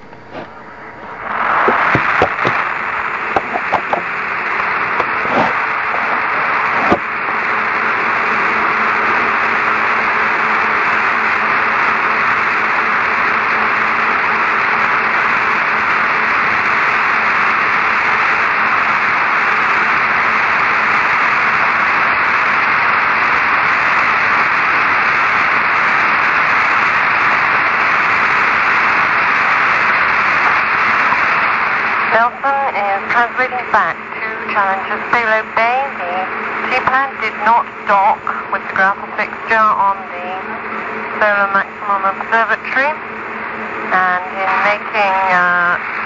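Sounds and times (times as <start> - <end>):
faint low hum: 0.0 - 11.6, 27.1 - 46.0
radio static hiss: 0.0 - 46.0.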